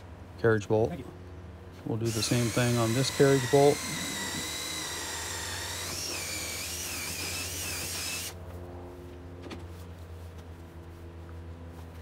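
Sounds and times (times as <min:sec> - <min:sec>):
electric drill whining: 0:02.1 - 0:08.4.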